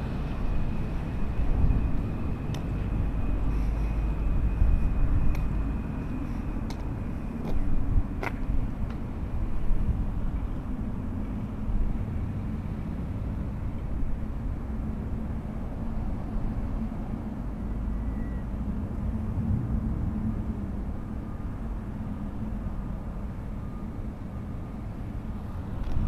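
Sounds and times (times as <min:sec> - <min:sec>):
low rumble of engine and traffic: 0:00.0 - 0:26.0.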